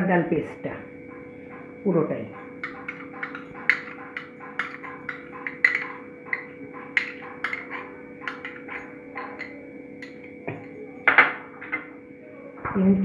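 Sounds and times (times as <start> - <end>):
metal spoon scraping glass bowl: 2.3 - 10.8.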